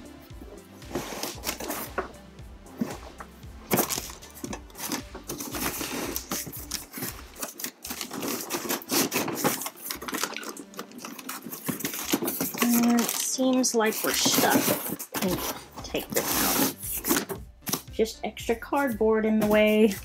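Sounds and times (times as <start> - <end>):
cardboard box handled: 0.9 - 2.2, 10.9 - 13.2, 13.8 - 17.4
plastic bags crinkling: 3.7 - 17.8.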